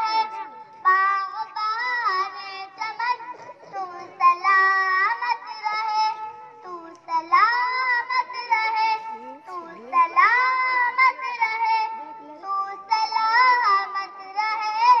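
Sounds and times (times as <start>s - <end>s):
child singing in a high voice: 0.0s - 15.0s.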